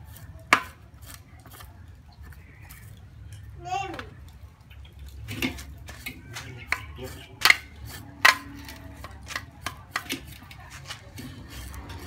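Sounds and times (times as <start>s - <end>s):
knife scraping scales on metal tray: 5.2s - 12.0s.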